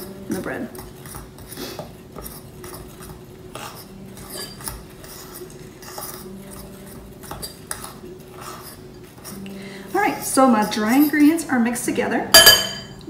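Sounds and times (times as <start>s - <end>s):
fork scraping and clinking in bowl: 2.2s - 9.5s, 12.4s - 13.0s.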